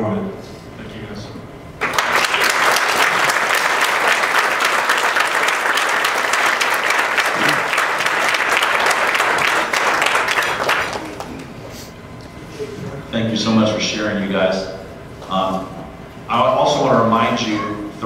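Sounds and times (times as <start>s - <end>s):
audience applauding: 1.8s - 11.6s.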